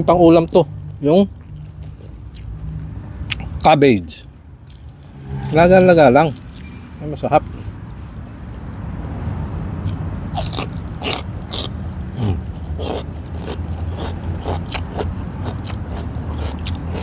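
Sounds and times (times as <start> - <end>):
low steady hum: 4.3 - 9.2
cabbage being chewed: 9.9 - 17.0.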